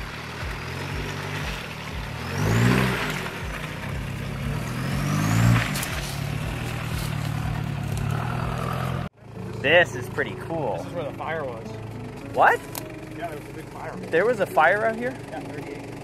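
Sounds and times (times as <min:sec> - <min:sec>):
diesel engine revving: 0:00.0 - 0:16.0.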